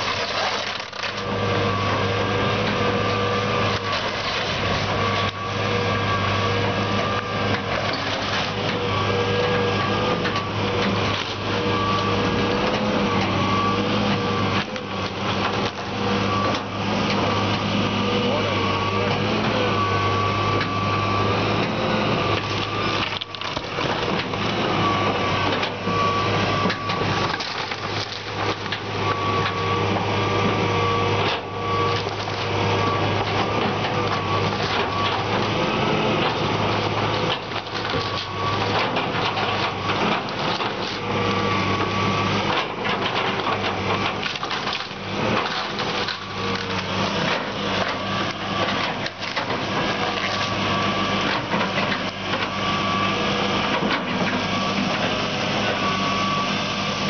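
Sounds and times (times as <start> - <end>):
excavator diesel engine humming: 0.0 - 57.0
timber cracking and crashing: 26.6 - 28.9, 43.0 - 50.5.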